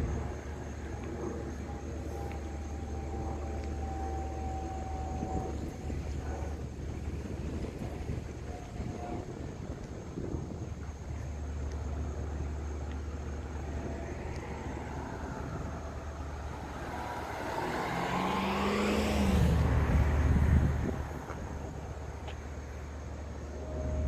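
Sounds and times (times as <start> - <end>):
steady low rumble: 0.0 - 24.0
vehicle passing by: 13.1 - 24.0.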